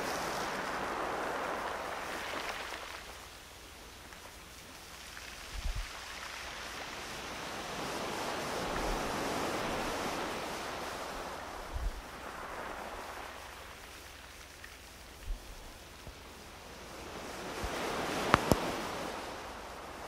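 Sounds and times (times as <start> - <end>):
ocean surf washing in: 0.0 - 3.4, 6.1 - 14.4, 16.3 - 20.0.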